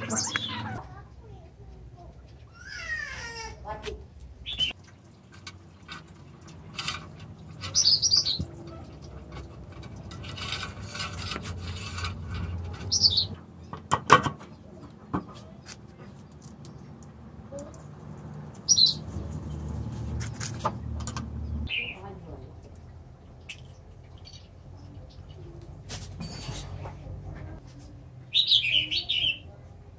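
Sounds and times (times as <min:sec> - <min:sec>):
birds chirping: 0:00.0 - 0:00.8, 0:04.4 - 0:04.8, 0:07.5 - 0:09.2, 0:12.7 - 0:17.1, 0:18.5 - 0:19.7, 0:21.3 - 0:22.2, 0:28.3 - 0:29.6.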